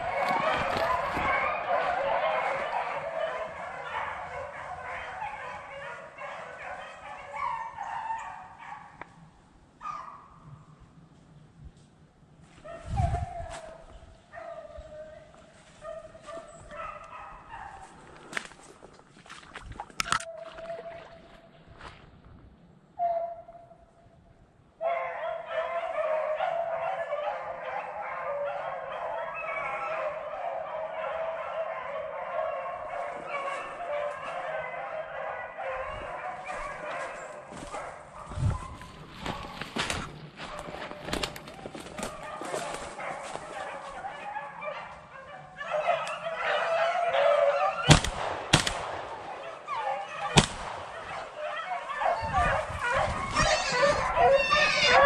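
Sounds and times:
pack of dogs baying: 0:00.0 - 0:09.2, 0:12.7 - 0:18.4, 0:24.8 - 0:48.0, 0:49.1 - 0:55.0
shotgun shots: 0:47.9 - 0:49.5, 0:50.2 - 0:51.3.

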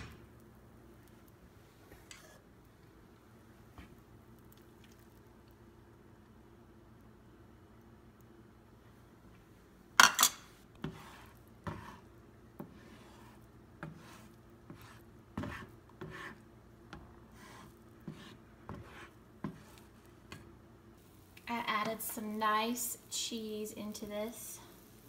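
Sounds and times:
plastic spatula scraping frying pan: 0:10.8 - 0:16.4, 0:17.3 - 0:20.4.

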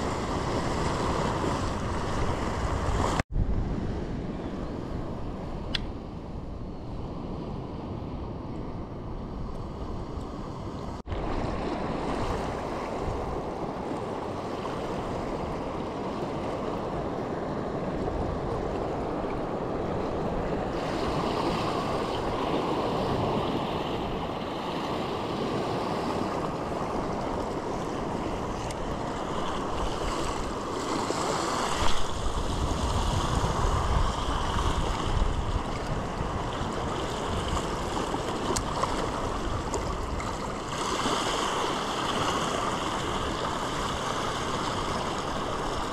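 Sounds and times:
wind buffeting microphone: 0:00.0 - 0:45.9
waves surging against rocks: 0:11.2 - 0:45.9.

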